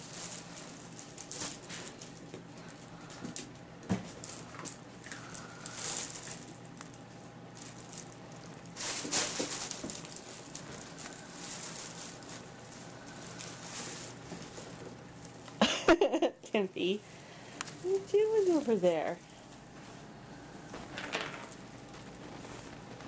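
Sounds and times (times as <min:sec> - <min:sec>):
fabric tunnel rustling: 0:00.0 - 0:03.2, 0:04.0 - 0:15.4, 0:17.3 - 0:23.0
puppy paws scratching: 0:00.0 - 0:15.6, 0:17.7 - 0:20.1, 0:20.7 - 0:23.0.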